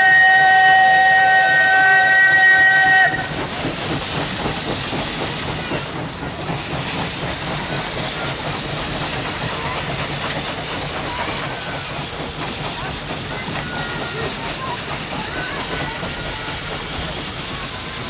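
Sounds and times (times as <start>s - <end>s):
steam locomotive whistle: 0.0s - 3.5s
steam hiss: 0.0s - 18.0s
working train noise: 0.0s - 18.0s.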